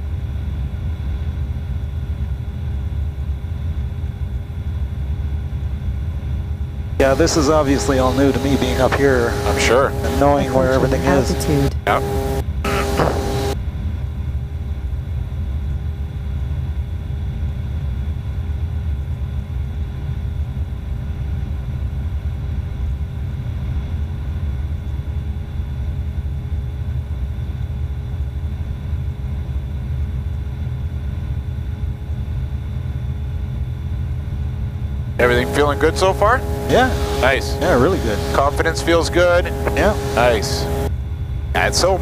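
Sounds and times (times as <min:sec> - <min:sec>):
light aircraft engine drone: 0:00.0 - 0:42.0.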